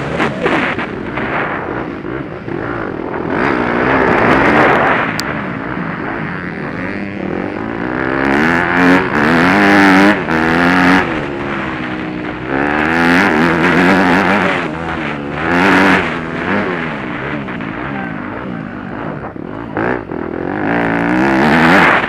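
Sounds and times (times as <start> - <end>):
wind noise on microphone: 0.0 - 7.2
motorcycle engine revving: 0.0 - 22.0.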